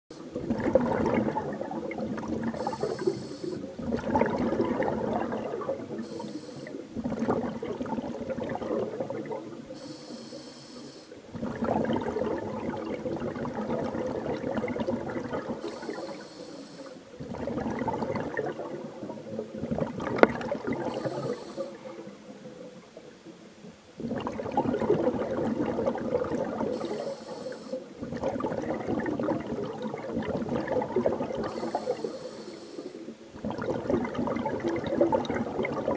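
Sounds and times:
exhaled bubbles gurgling: 0:00.1 - 0:10.4, 0:11.1 - 0:35.9
regulator inhale hiss: 0:02.6 - 0:03.8, 0:06.0 - 0:06.9, 0:09.7 - 0:11.2, 0:15.6 - 0:17.1, 0:20.8 - 0:22.0, 0:26.7 - 0:28.0, 0:31.4 - 0:33.1.

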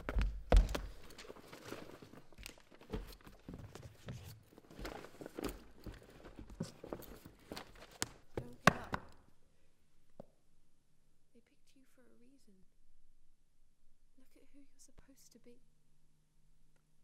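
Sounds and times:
paper rustling: 0:00.0 - 0:08.6
fabric bag being handled: 0:00.7 - 0:08.2.

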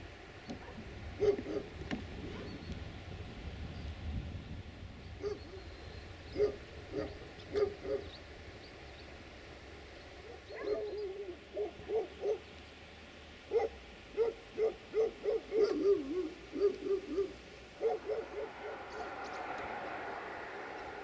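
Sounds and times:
dog barking: 0:00.6 - 0:01.7, 0:05.2 - 0:05.5, 0:06.4 - 0:08.1, 0:10.2 - 0:12.4, 0:13.5 - 0:19.1.

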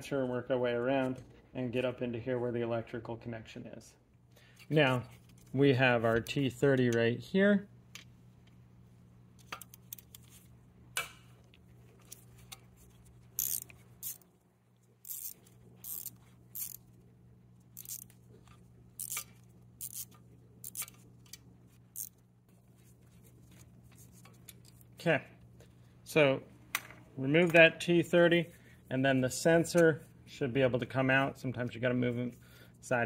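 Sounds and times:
ratchet clicking: 0:13.4 - 0:14.2, 0:15.0 - 0:16.8, 0:17.8 - 0:18.1, 0:19.0 - 0:21.4, 0:22.0 - 0:22.2.

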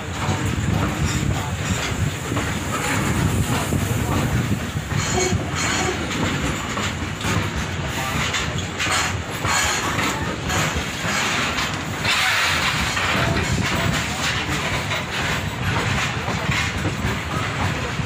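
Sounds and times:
freight train wheels rumbling: 0:00.0 - 0:18.0
rushing hiss: 0:01.0 - 0:07.0, 0:08.9 - 0:15.3.

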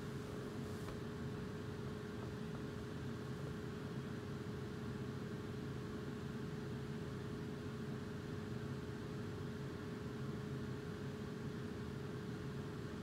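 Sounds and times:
small fan humming: 0:00.0 - 0:13.0.

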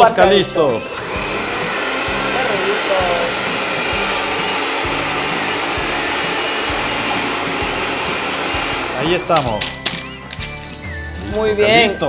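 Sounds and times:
blender motor whirring: 0:00.0 - 0:09.4.

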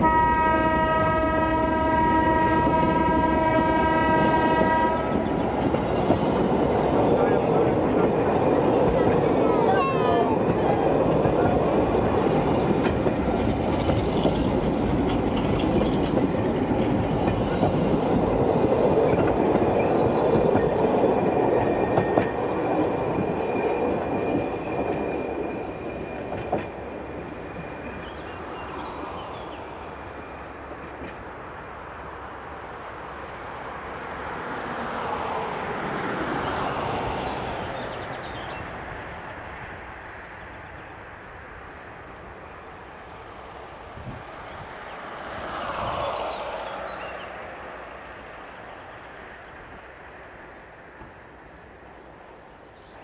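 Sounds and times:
train wagons clattering on rails: 0:00.7 - 0:31.6.

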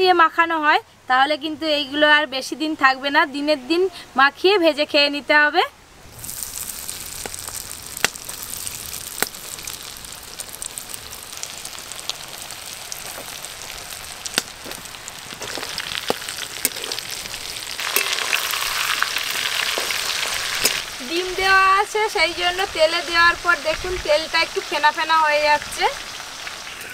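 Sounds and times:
food deep-frying in oil: 0:06.0 - 0:26.9
oil popping: 0:06.1 - 0:21.1.

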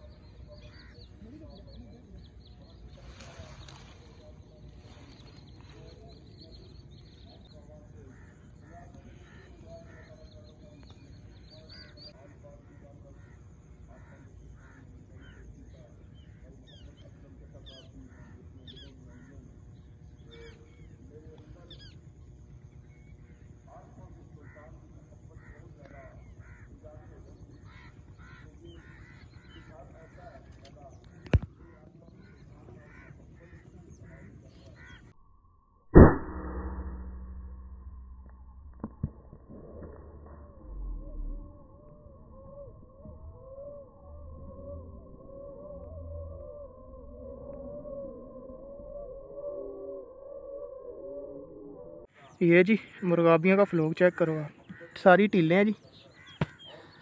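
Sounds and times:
birds calling: 0:00.0 - 0:35.2, 0:51.8 - 0:57.0
steady low hum: 0:00.0 - 0:35.2, 0:36.0 - 0:57.0
loud thump: 0:36.0 - 0:37.7
sharp crack: 0:36.0 - 0:40.4.

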